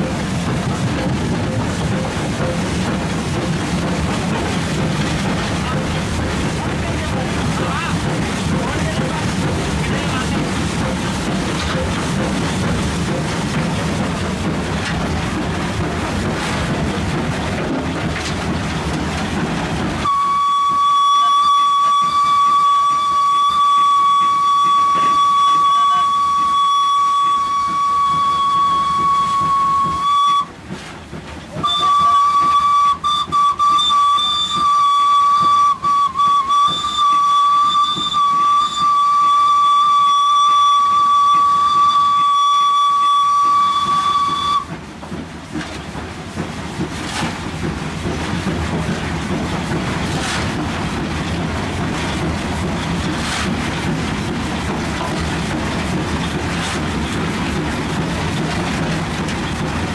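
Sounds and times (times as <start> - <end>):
steam locomotive rumble: 0.0 - 59.9
steam whistle high note: 20.0 - 30.5, 31.6 - 44.7.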